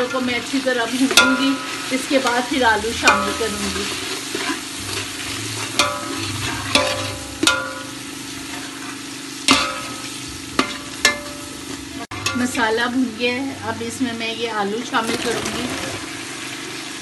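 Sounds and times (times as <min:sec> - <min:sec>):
masala sizzling in oil: 0:00.0 - 0:17.0
spatula clinking against pot: 0:01.0 - 0:04.6, 0:05.7 - 0:07.9, 0:10.6 - 0:11.5
metal spatula scraping pot: 0:01.0 - 0:12.7.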